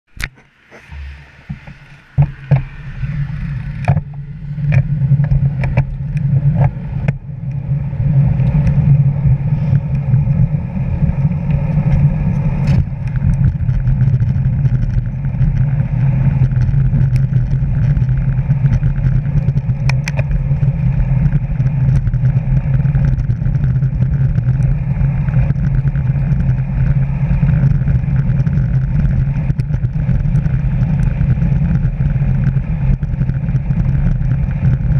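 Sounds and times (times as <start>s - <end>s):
wind and tyre rumble: 0.0s - 34.9s
sharp clicks and knocks: 0.1s - 2.7s, 3.8s - 7.6s, 11.5s - 24.7s.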